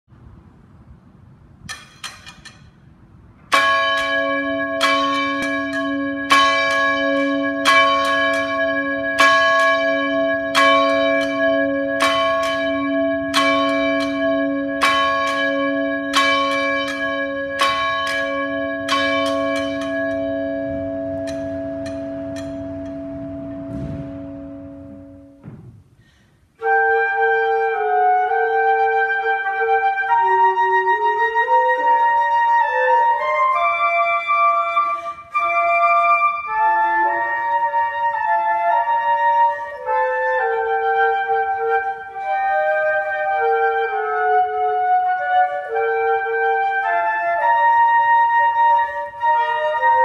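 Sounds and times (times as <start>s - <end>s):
church bell tolling: 3.5s - 25.6s.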